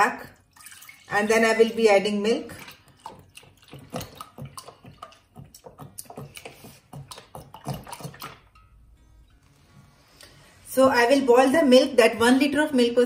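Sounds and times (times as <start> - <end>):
milk pouring and splashing: 0.3 - 9.4.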